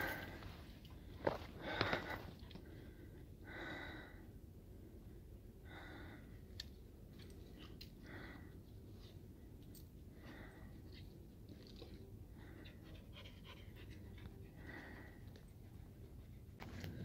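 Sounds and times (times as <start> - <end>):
person breathing hard: 1.2 - 4.4, 5.6 - 6.5, 12.3 - 17.0.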